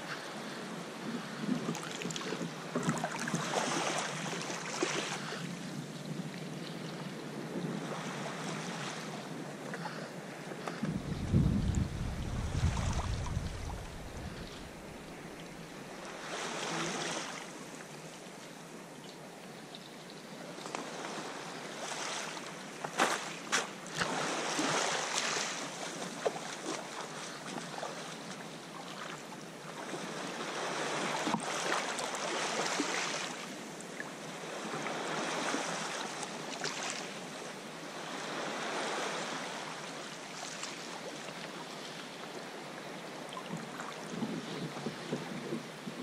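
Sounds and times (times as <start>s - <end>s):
sea water sloshing against rocks: 10.7s - 15.7s.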